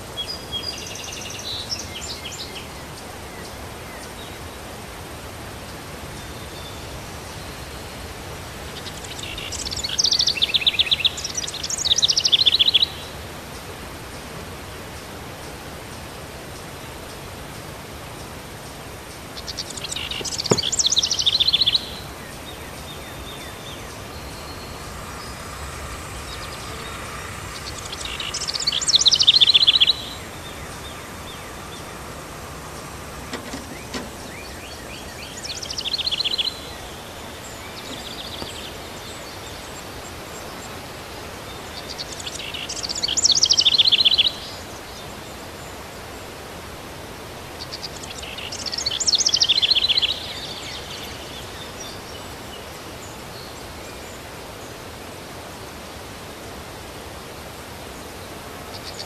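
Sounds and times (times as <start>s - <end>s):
outdoor background noise: 0.0s - 59.0s
songbird trilling: 19.4s - 39.1s.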